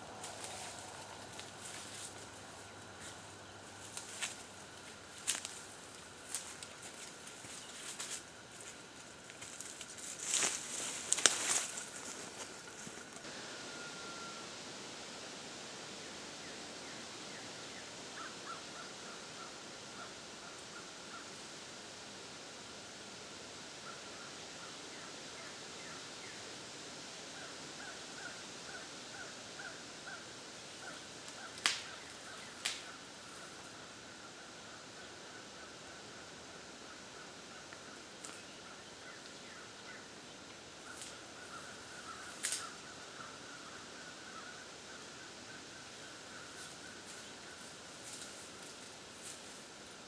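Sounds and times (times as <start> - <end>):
steady woodland hiss: 0.0 - 50.0
faint chirping: 9.5 - 14.6.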